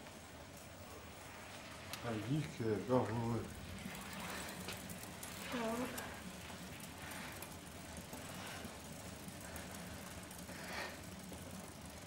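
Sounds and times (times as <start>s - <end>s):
bicycle trainer whir: 0.0s - 12.0s
faint breaths: 3.8s - 12.0s.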